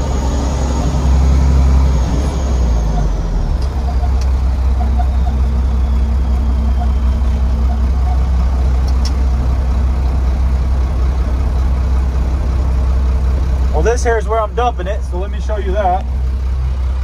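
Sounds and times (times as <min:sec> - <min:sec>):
truck engine droning: 0:00.0 - 0:17.0.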